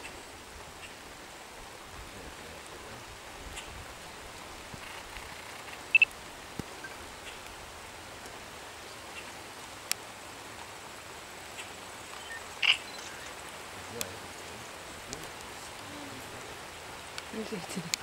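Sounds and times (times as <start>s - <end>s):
outdoor hiss: 0.0s - 18.0s
faint clicks: 17.1s - 18.0s.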